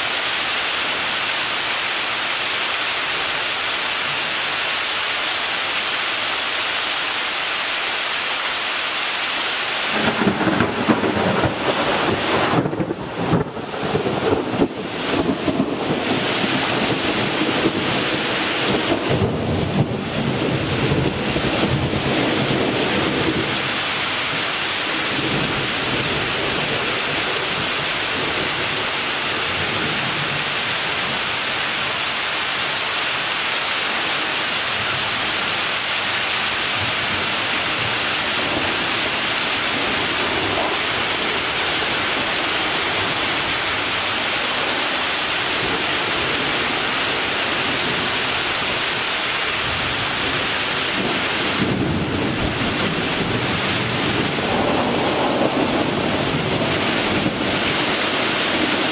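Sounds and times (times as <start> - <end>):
steady rain: 0.0 - 58.9
thunder rumbling: 9.9 - 23.7, 36.8 - 44.8, 49.7 - 58.9.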